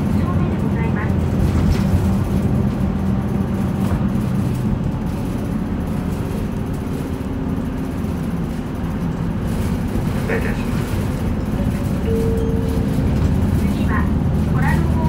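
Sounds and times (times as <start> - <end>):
bus engine humming: 0.0 - 15.0
road and cabin noise: 0.0 - 15.0.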